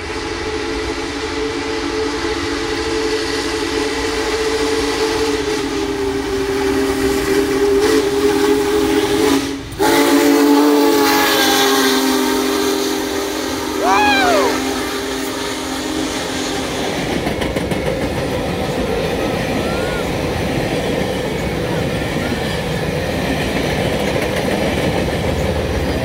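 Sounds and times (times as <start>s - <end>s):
passing train noise: 0.0s - 26.0s
steam locomotive chime whistle: 0.4s - 17.1s.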